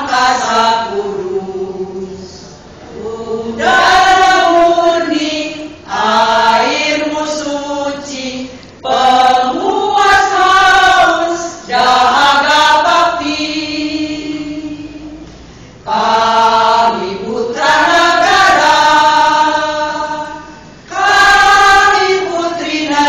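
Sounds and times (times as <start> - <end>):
women's choir singing: 0.0 - 23.0.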